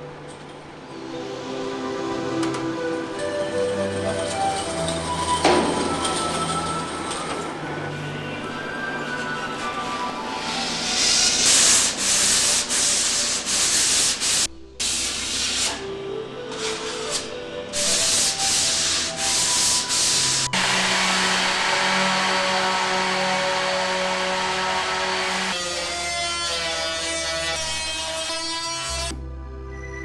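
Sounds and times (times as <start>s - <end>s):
quiet background music: 0.0s - 30.0s
sanding board rasping on hull: 10.6s - 14.5s, 17.8s - 25.8s.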